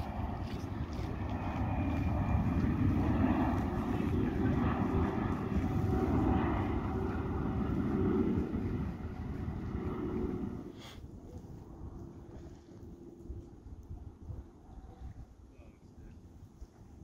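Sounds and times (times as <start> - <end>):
jet airliner engine rumble: 0.0 - 17.0.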